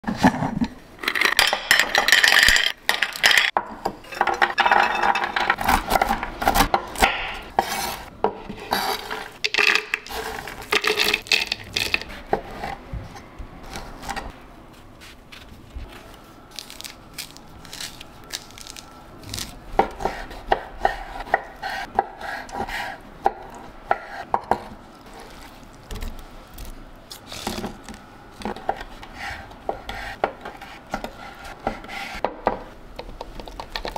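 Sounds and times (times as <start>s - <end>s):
kitchen knocks and clicks: 1.0s - 7.5s.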